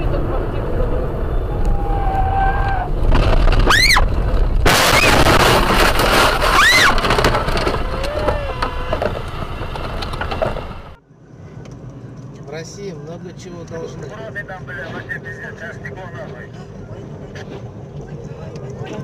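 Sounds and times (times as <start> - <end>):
car crash impact: 2.9 - 11.0
windshield shattering: 3.0 - 10.9
glass and debris rattling: 4.6 - 10.8.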